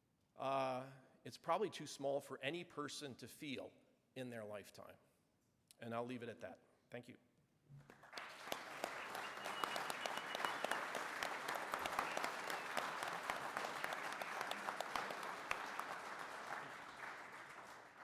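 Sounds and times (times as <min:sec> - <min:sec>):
audience applauding: 0:07.9 - 0:18.0.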